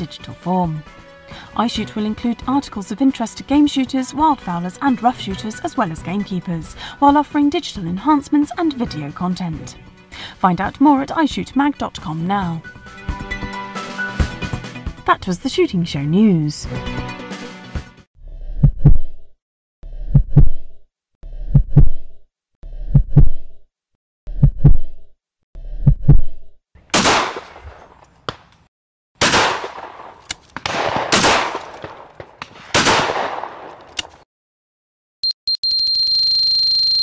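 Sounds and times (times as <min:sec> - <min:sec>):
heartbeat thumps: 0:18.5 - 0:19.1, 0:20.0 - 0:20.6, 0:21.4 - 0:22.0, 0:22.8 - 0:23.4, 0:24.3 - 0:24.9, 0:25.7 - 0:26.3
shotgun shots: 0:26.9 - 0:28.5, 0:29.2 - 0:33.9.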